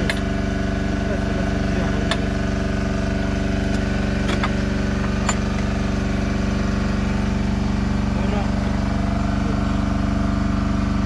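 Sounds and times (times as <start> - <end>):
combustion engine idling: 0.0 - 11.0.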